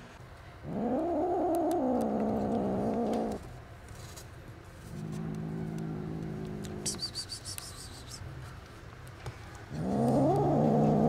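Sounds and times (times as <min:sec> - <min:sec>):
kittens growling: 0:00.6 - 0:03.5, 0:04.9 - 0:07.4, 0:09.7 - 0:11.0.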